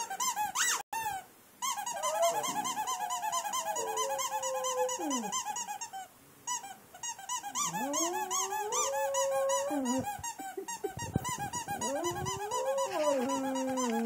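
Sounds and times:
squeaky toy squeaking: 0.0s - 9.0s, 9.9s - 14.0s
dog howling: 1.9s - 5.4s, 7.6s - 10.1s, 11.8s - 14.0s.

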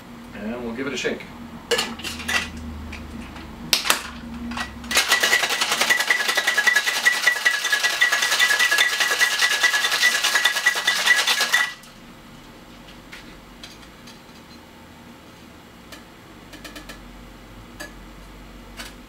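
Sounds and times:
ice rattling in cocktail shaker: 4.9s - 11.8s
metal shaker tins knocking: 4.9s - 11.8s.

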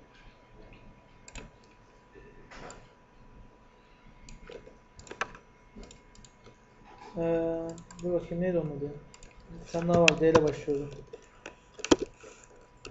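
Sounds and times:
computer mouse clicks: 1.3s - 1.8s, 4.3s - 6.6s, 7.7s - 8.1s, 9.1s - 12.9s.

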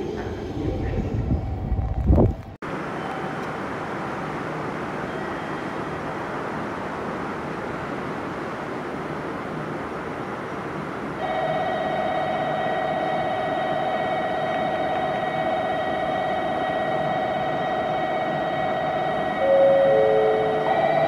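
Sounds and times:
steady alarm tone: 11.2s - 21.0s.

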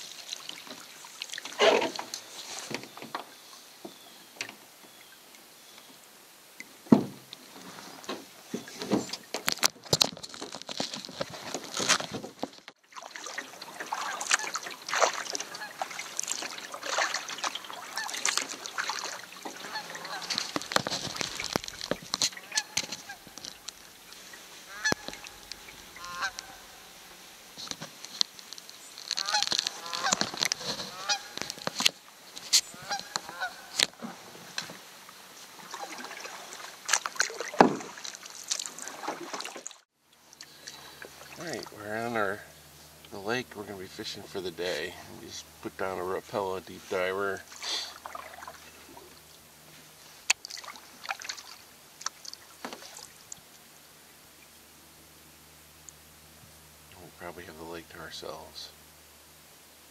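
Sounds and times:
birds honking: 13.7s - 27.7s, 28.6s - 31.6s, 32.5s - 33.8s
canoe and gear knocking: 19.5s - 23.8s.

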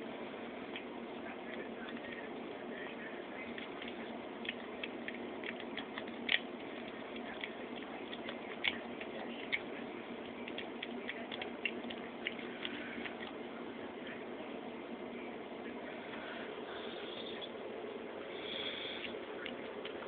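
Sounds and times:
cat chewing and licking: 0.1s - 14.3s, 18.2s - 20.0s.

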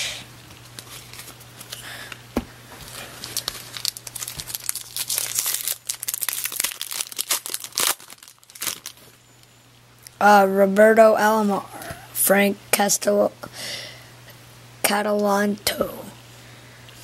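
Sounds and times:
foil wrapper tearing and crinkling: 2.9s - 9.1s.

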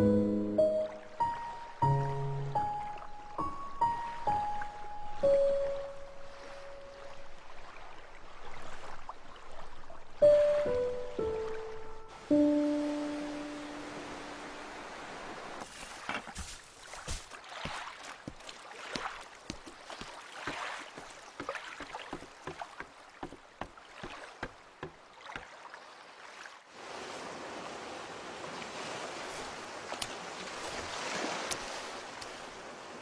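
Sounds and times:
water splashing and sloshing: 0.0s - 33.0s
sea water washing: 16.7s - 26.6s.

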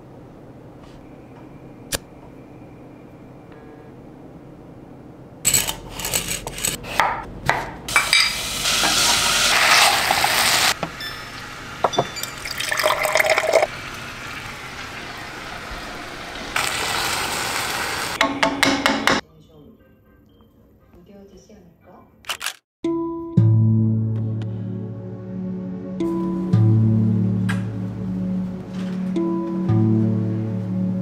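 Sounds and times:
utensils clinking on cookware: 5.5s - 6.8s, 7.9s - 9.0s, 10.9s - 13.7s
water running into a glass: 9.5s - 14.0s.

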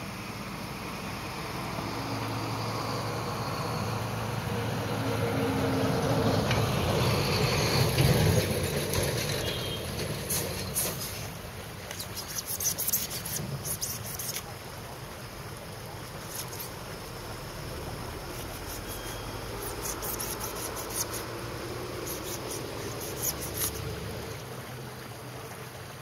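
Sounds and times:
small stream rushing: 0.0s - 26.0s
vehicle engine passing by: 1.0s - 11.0s.

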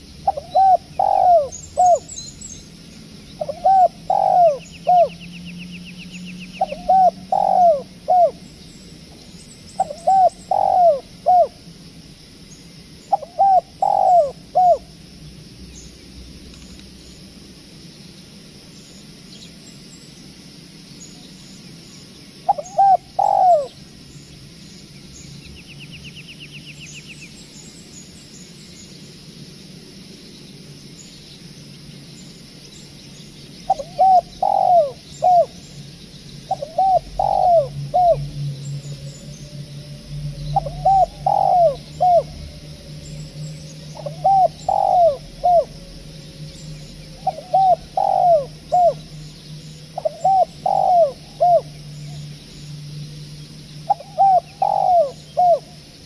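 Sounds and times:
dove cooing: 0.0s - 2.1s, 3.4s - 5.2s, 6.5s - 8.4s, 9.8s - 11.6s, 13.1s - 14.9s, 22.5s - 23.8s, 33.7s - 35.6s, 36.5s - 49.1s, 49.8s - 51.8s, 53.9s - 55.8s
bird trill: 0.0s - 11.7s, 12.5s - 14.9s, 21.0s - 29.1s, 32.1s - 56.0s
small birds chirping: 0.0s - 56.0s.

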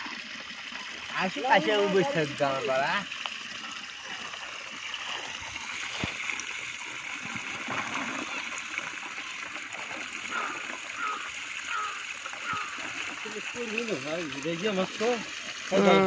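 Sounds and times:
water trickling: 0.0s - 16.0s.

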